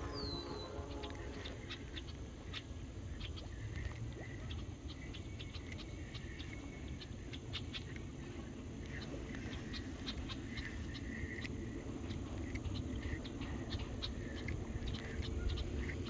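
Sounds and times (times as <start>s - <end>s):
wind rumble on microphone: 0.0s - 16.0s
faint clicks: 8.8s - 15.4s.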